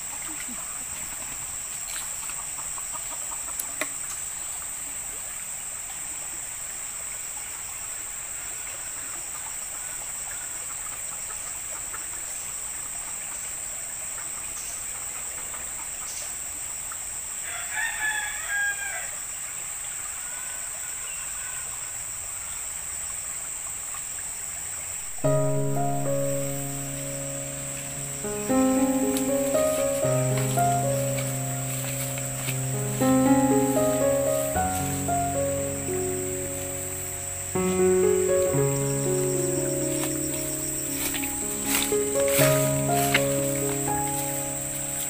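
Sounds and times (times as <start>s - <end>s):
rooster crowing: 17.4s - 19.2s
music: 25.2s - 45.0s
high-pitched insect drone: 25.3s - 45.0s.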